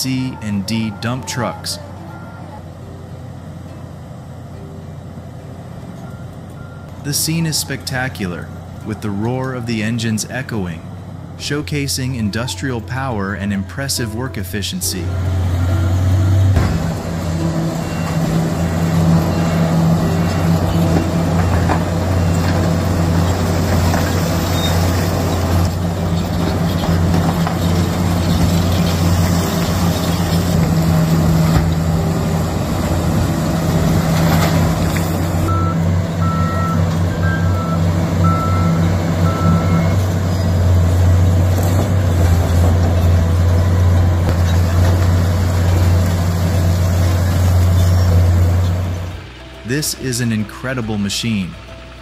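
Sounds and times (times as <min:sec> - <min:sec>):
heavy diesel engines running: 0:00.0 - 0:52.0
reversing alarm beeps: 0:00.2 - 0:02.6, 0:06.0 - 0:06.9, 0:17.4 - 0:23.2, 0:35.4 - 0:40.0.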